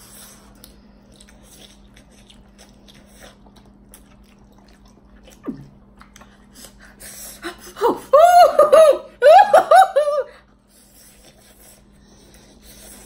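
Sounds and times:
people slurping and chewing noodles: 0:00.0 - 0:07.7, 0:10.6 - 0:13.0.

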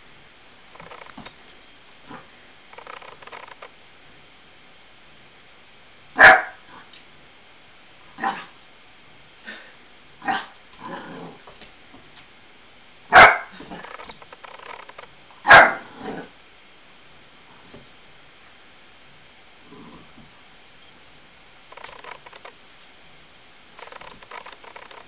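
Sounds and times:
puppy barking: 0:06.2 - 0:06.6, 0:13.1 - 0:13.6, 0:15.5 - 0:15.8.

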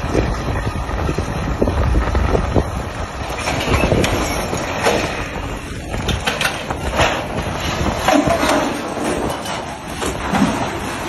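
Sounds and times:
heavy engine rumble: 0:00.0 - 0:11.0
wind buffeting microphone: 0:00.0 - 0:11.0
sharp knocks and clatter: 0:03.3 - 0:11.0.

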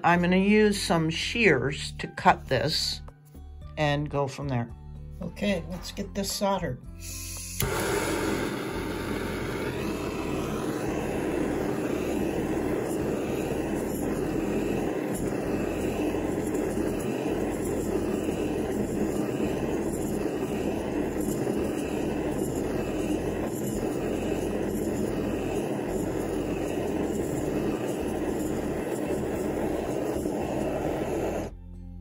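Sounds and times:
torch flame hissing: 0:07.0 - 0:31.5.

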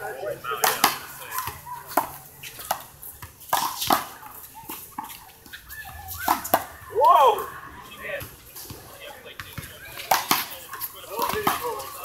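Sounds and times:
handball slaps: 0:00.6 - 0:02.1.

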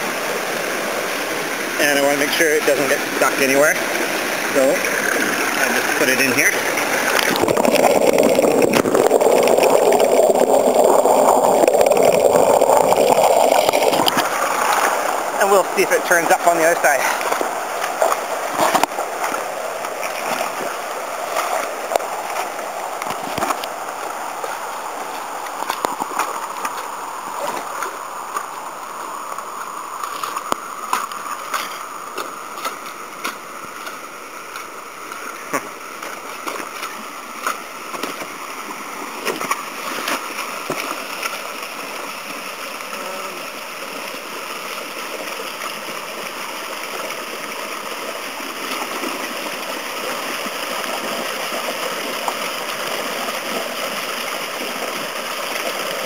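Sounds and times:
creek water rushing over boulders: 0:00.0 - 0:56.0
short knocks and splashes: 0:16.2 - 0:19.4, 0:20.0 - 0:23.6.

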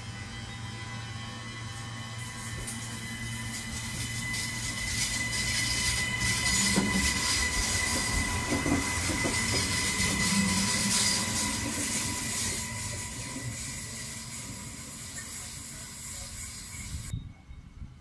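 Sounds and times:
train wheels on rails: 0:00.0 - 0:17.1
train high-pitched whine: 0:00.0 - 0:17.5.

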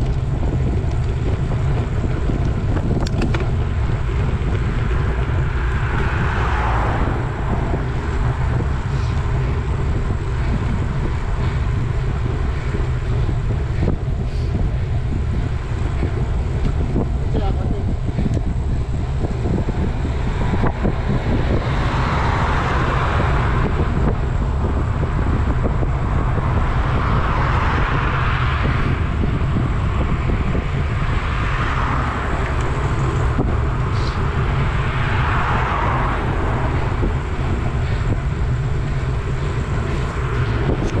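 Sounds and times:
wind rumble on microphone: 0:00.0 - 0:41.0
tyre hiss on wet road: 0:33.9 - 0:34.2.

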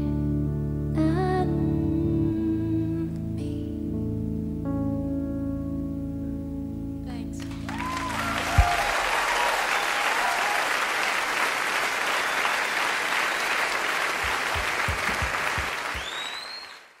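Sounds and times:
concert audience applauding: 0:07.4 - 0:17.0
low thumps: 0:08.5 - 0:09.2, 0:14.2 - 0:16.0
rising whistle: 0:12.1 - 0:13.8, 0:15.8 - 0:16.9.

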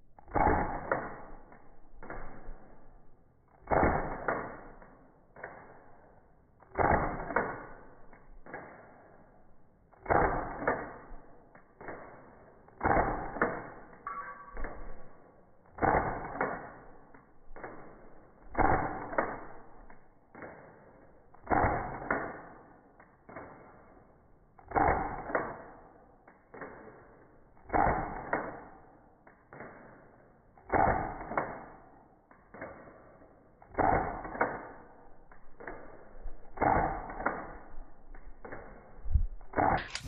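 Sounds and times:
pistol shot snap: 0:39.6 - 0:40.0.

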